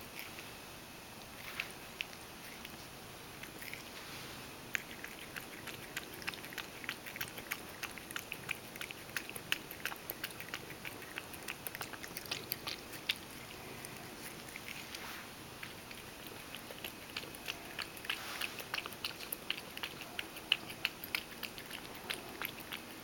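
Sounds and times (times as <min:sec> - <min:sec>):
cat lapping milk: 0:04.6 - 0:23.0.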